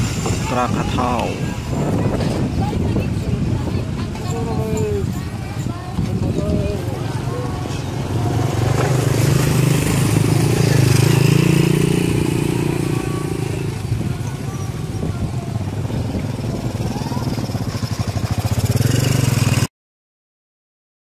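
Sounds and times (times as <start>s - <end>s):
motorcycle engine running: 4.9s - 19.7s.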